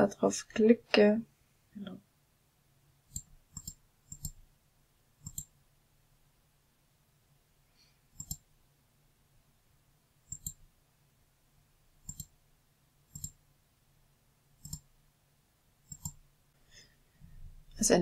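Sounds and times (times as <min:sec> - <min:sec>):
faint low hum: 0:00.0 - 0:18.0
computer mouse clicks: 0:03.1 - 0:04.4, 0:05.2 - 0:05.5, 0:08.1 - 0:08.5, 0:10.3 - 0:10.6, 0:12.0 - 0:12.4, 0:13.1 - 0:13.4, 0:14.6 - 0:14.9, 0:15.9 - 0:16.2.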